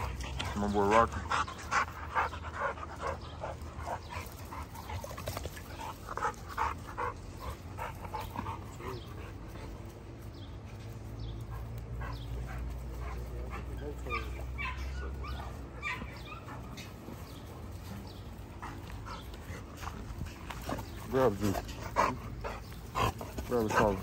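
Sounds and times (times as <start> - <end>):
steady low hum: 0.0 - 24.0
dogs yipping and whimpering: 11.5 - 20.0.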